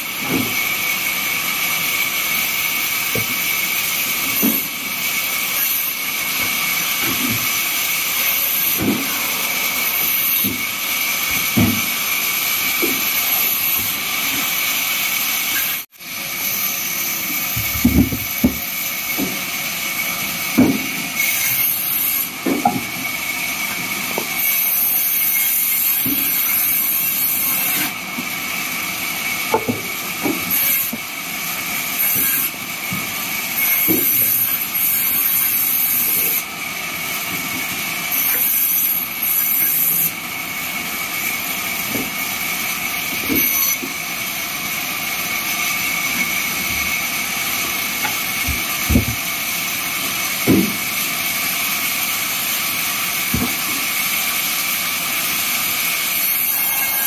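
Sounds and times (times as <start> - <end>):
band saw cutting wood: 0.0 - 57.0.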